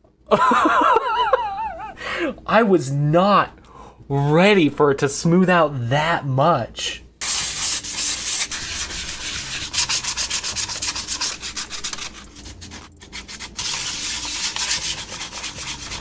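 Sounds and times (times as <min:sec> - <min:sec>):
sandpaper rubbing plastic: 0:07.2 - 0:16.0.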